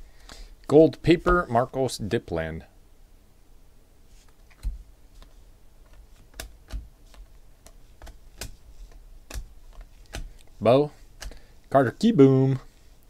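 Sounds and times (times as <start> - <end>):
cards flipping and snapping: 4.2 - 10.6, 11.2 - 11.5.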